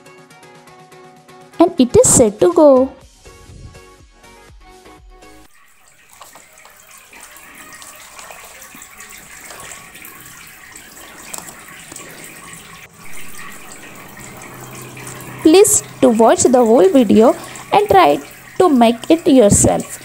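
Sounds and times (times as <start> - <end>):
fountain water splashing: 5.5 - 20.0.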